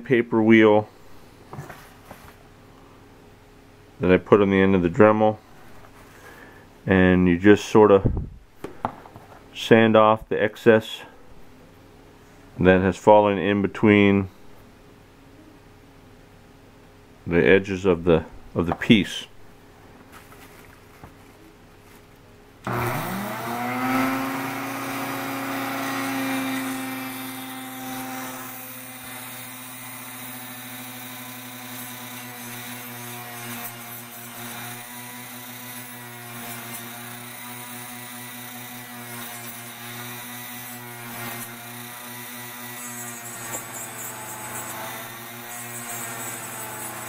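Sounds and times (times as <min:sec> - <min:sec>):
rotary tool whining while sanding: 0:22.6 - 0:47.0.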